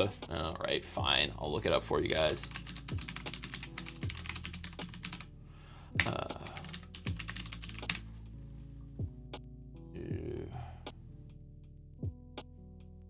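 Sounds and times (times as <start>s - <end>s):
typing on computer keyboard: 2.4s - 5.3s, 6.0s - 8.0s.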